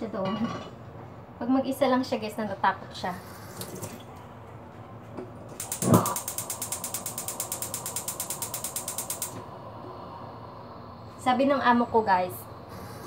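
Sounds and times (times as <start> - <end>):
rapid mechanical clicking: 5.6 - 9.4.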